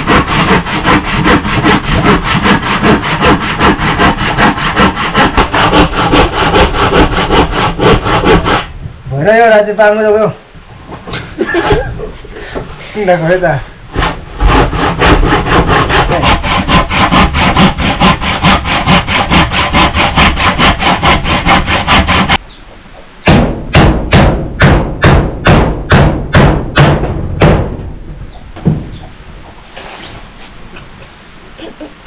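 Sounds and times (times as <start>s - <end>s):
handsaw cutting wood: 0.0s - 8.7s, 13.9s - 22.4s.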